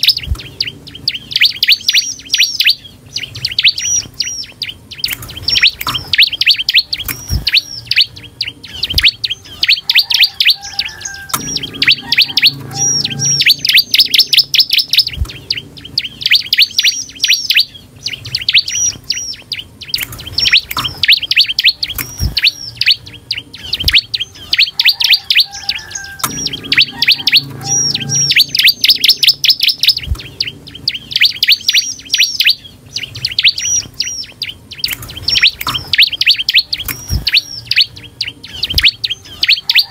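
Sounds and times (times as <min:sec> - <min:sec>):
bird singing high chirps: 0:00.0 - 0:39.9.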